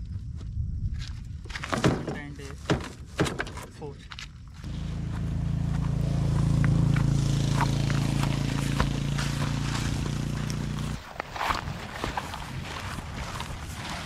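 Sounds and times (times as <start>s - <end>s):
engine running steadily: 4.6s - 11.0s.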